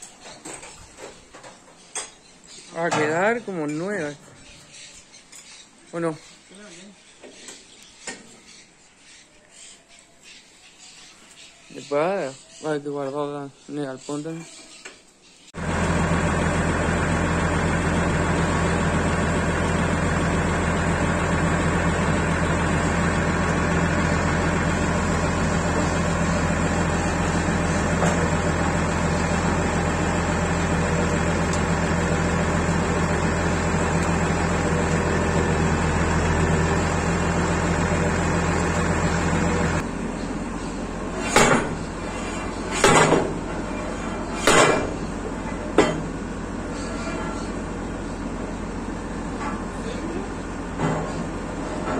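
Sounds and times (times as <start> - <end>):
machine humming: 15.6 - 45.4
sharp metallic knocks: 44.4 - 45.0.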